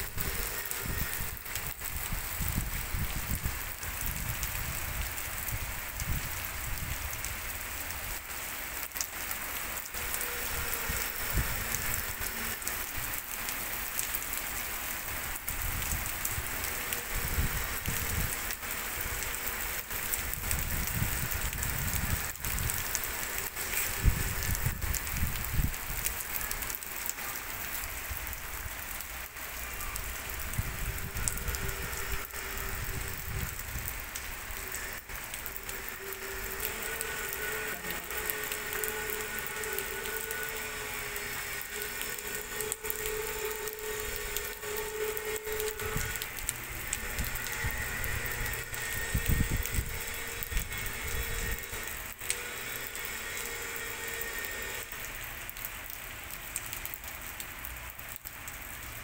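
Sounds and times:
heavy rain on street and cars: 0.0s - 59.0s
wavering motor hum: 30.1s - 55.3s.

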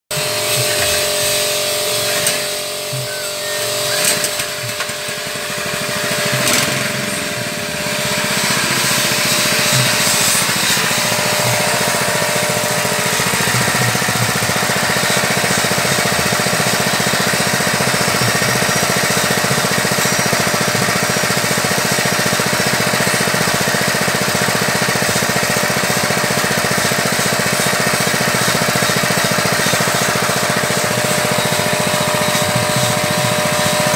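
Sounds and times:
small petrol engine running: 0.1s - 33.9s.

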